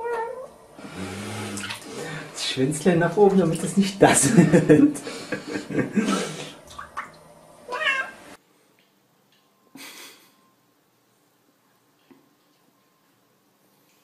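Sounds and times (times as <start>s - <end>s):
cat meowing: 0.0s - 0.5s, 7.7s - 8.2s.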